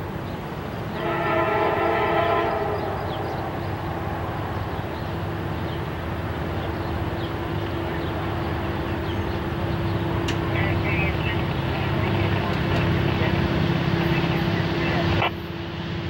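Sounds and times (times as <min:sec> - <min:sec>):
train rumbling: 0:00.0 - 0:16.0
locomotive air horn: 0:00.9 - 0:04.3.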